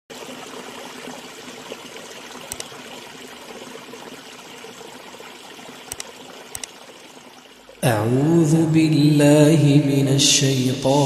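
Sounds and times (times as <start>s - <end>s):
stream babbling over stones: 0.1s - 9.4s
brief clicks: 5.9s - 6.8s.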